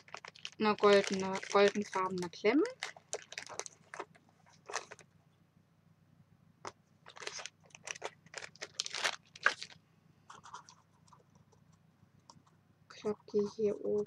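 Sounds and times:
plastic bag crinkling: 0:00.0 - 0:05.1, 0:07.0 - 0:11.2.

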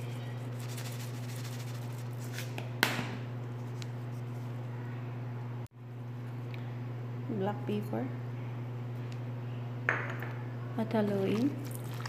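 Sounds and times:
salt shaker rustling: 0:00.0 - 0:02.5
steady low hum: 0:00.0 - 0:12.0.

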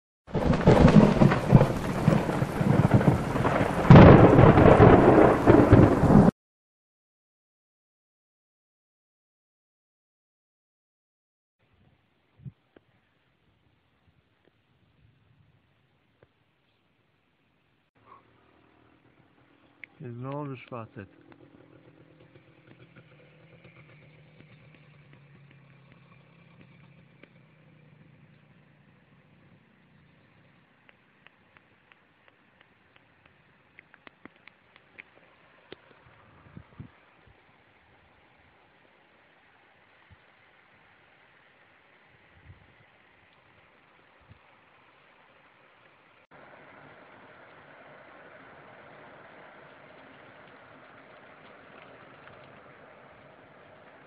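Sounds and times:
heavy rain: 0:00.3 - 0:06.3, 0:46.4 - 0:54.0
thunder rumbling: 0:00.3 - 0:06.3
thunderclap: 0:00.3 - 0:06.3
idling engine hum: 0:18.0 - 0:42.0, 0:42.9 - 0:54.0
faint ticks: 0:30.4 - 0:36.0, 0:49.6 - 0:53.3.

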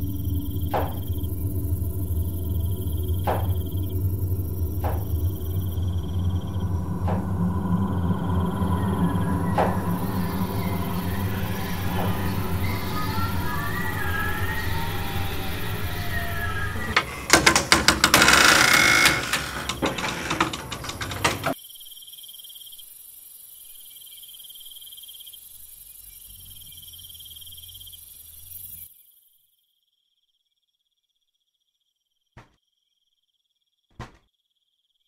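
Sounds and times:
ominous music: 0:00.0 - 0:21.5
crickets chirping: 0:00.0 - 0:35.0.

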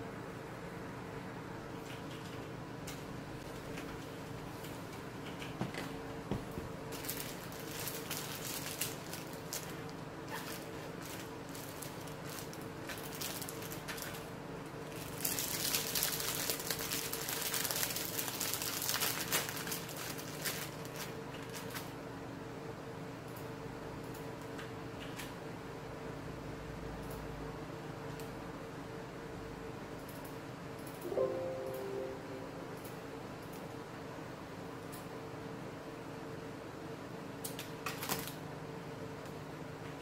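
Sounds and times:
plastic bag crinkling: 0:06.9 - 0:21.9
steady low hum: 0:31.0 - 0:34.8.

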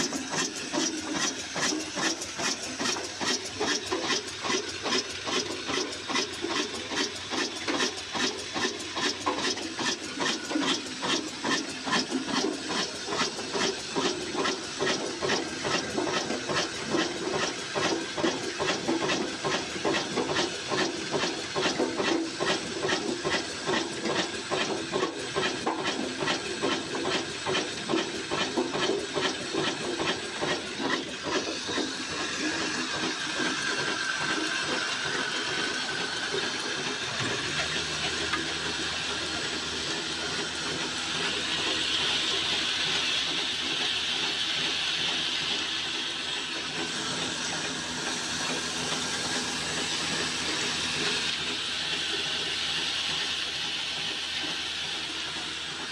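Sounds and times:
diesel engine rhythmic exhaust beat: 0:00.0 - 0:55.9
whir of belts and milling machinery: 0:00.0 - 0:55.9.

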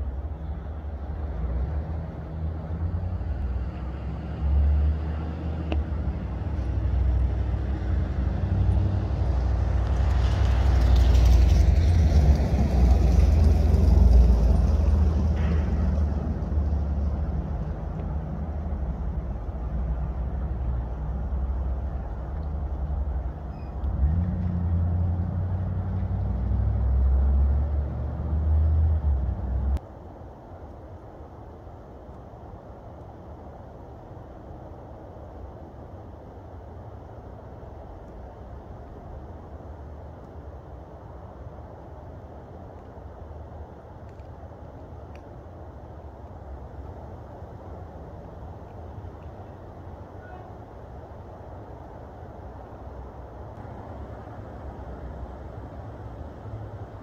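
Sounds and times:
airplane flying overhead: 0:00.0 - 0:29.8.

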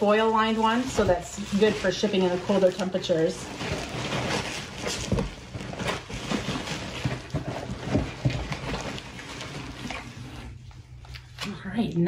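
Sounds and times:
plastic wrap crinkling: 0:00.0 - 0:11.5.

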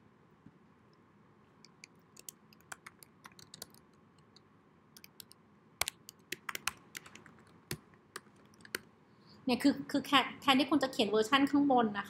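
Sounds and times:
typing on computer keyboard: 0:01.7 - 0:04.4, 0:05.0 - 0:08.9.

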